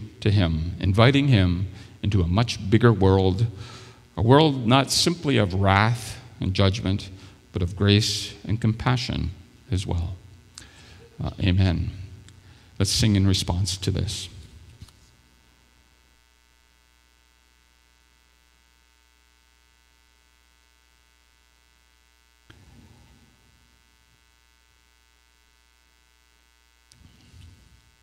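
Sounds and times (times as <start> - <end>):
electrical mains hum: 0.0 - 28.0.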